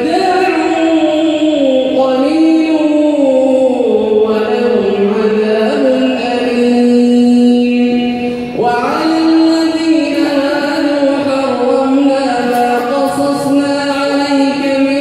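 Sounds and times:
man chanting recitation: 0.0 - 15.0.

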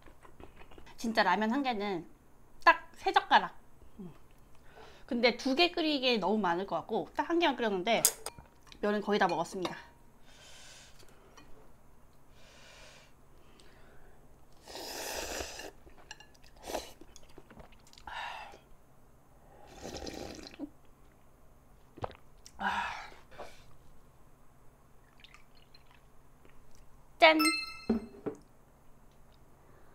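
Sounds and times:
slurping noodles: 14.6 - 15.8, 19.6 - 20.6.

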